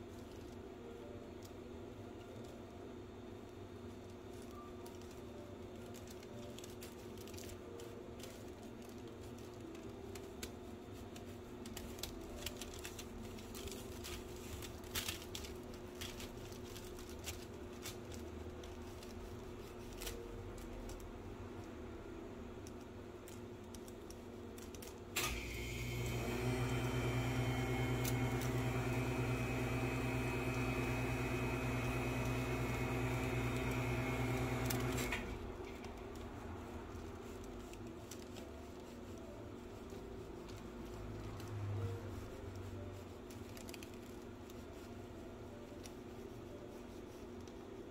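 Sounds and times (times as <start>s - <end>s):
electric appliance motor humming: 25.2s - 36.3s.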